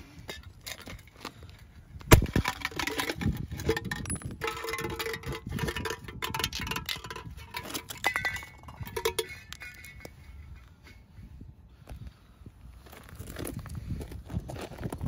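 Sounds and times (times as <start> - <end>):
metallic clinks and scraping: 2.4 - 11.1.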